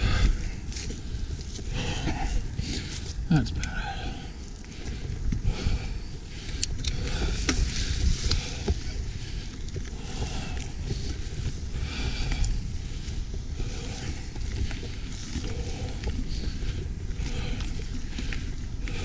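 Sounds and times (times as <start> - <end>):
bike clicks and rattles: 0.0 - 19.0
tyres rumbling on dirt trail: 0.0 - 19.0.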